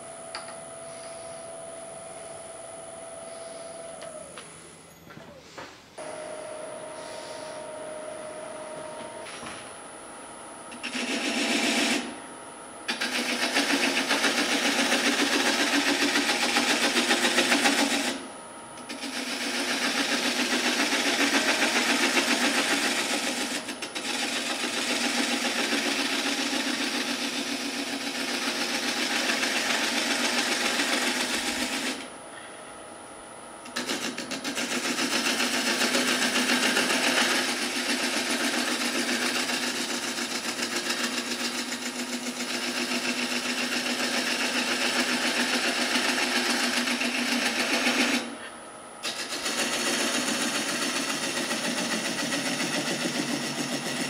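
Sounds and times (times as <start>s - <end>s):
wood lathe humming: 6.0s - 10.0s, 10.7s - 12.2s, 12.9s - 32.5s, 33.6s - 54.0s
turning tool scraping wood: 10.7s - 12.2s, 12.9s - 32.1s, 33.7s - 54.0s.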